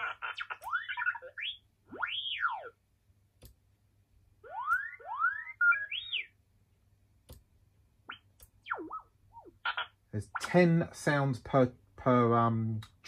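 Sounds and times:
robot beeps and whistles: 4.5s - 6.4s.

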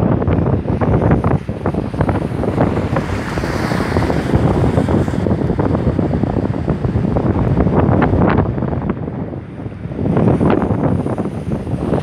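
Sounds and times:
storm wind buffeting microphone: 0.0s - 12.0s.

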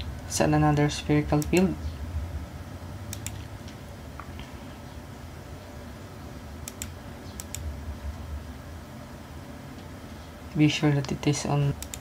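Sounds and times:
low steady hum: 0.0s - 12.0s
computer mouse clicking: 1.3s - 1.7s, 3.1s - 3.8s, 6.6s - 7.7s, 11.8s - 12.0s.

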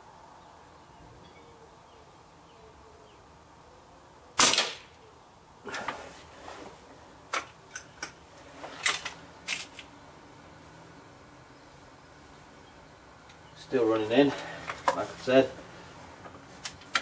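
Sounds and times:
air rifle shot: 4.4s - 5.0s.

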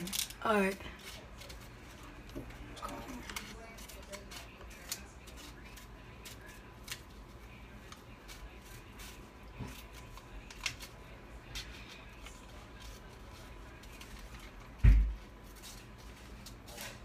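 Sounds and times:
scissors snipping paper: 2.9s - 7.2s.

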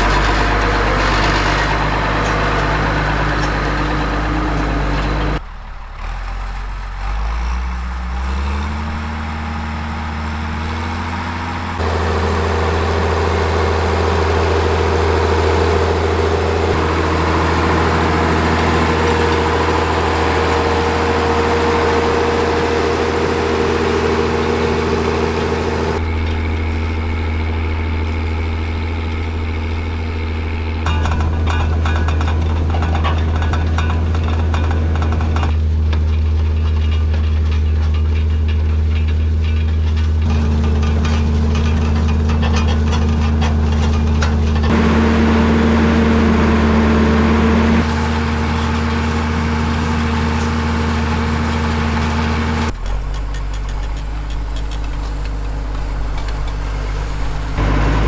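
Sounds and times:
tractor diesel engine: 0.0s - 58.0s.

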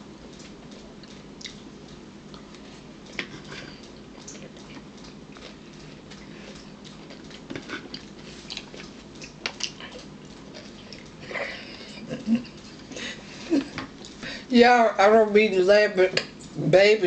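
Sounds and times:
chewing: 0.0s - 14.5s
low room hum: 0.0s - 17.0s
person laughing: 11.2s - 13.8s.

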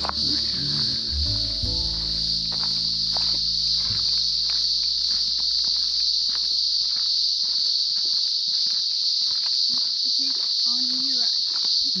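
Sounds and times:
cicadas droning: 0.0s - 12.0s
footsteps crunching on dry leaves: 0.0s - 12.0s.

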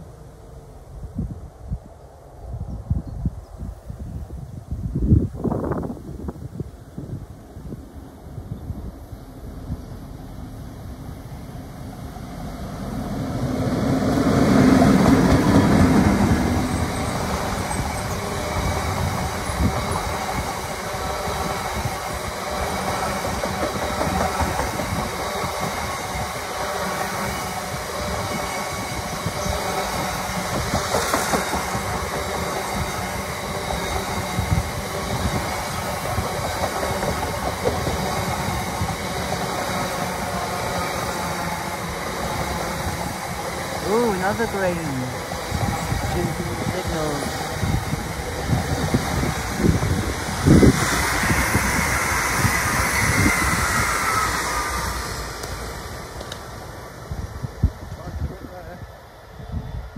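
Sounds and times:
train wheels clickety-clack: 13.4s - 43.8s.

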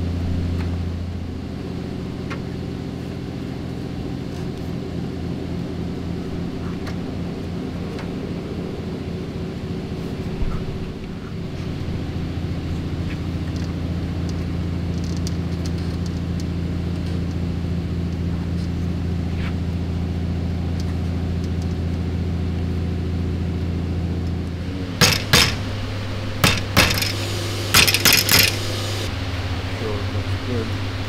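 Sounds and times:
steady low hum: 0.0s - 31.0s
hammer tapping metal: 25.0s - 25.6s, 26.4s - 28.6s.

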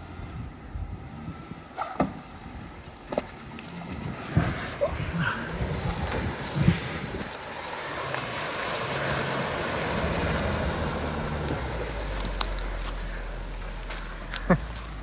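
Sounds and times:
off-road vehicle engine running: 0.0s - 15.0s.

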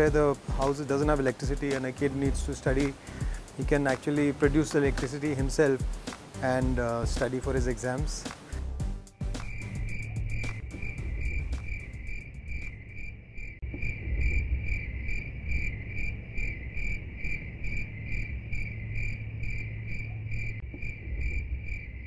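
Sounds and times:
insect chirping: 0.0s - 22.0s
low rumble: 9.6s - 22.0s.

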